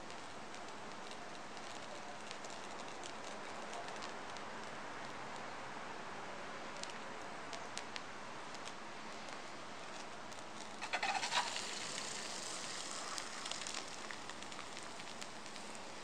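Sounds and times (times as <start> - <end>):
molten metal crackling in mould: 0.0 - 16.0.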